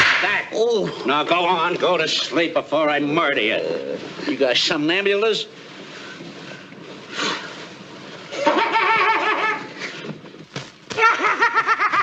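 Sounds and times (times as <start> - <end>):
high cackling laughter: 8.3 - 9.7, 11.0 - 12.0.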